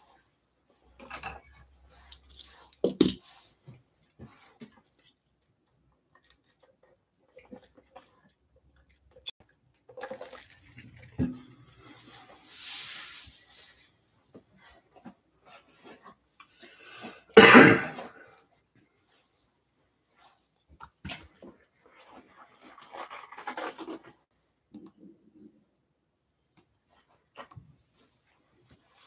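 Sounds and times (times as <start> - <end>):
person coughing: 17.4 - 18.3.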